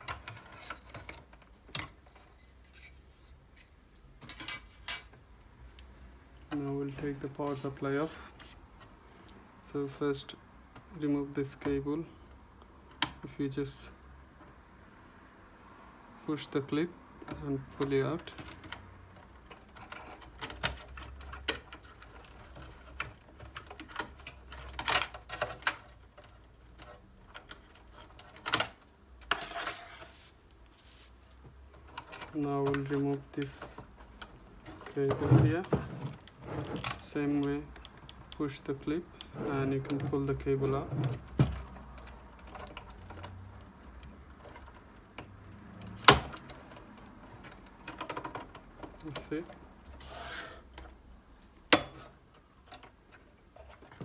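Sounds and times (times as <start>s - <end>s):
wires scraping against metal case: 18.1s - 51.0s
cables shifting against metal chassis: 31.6s - 51.0s.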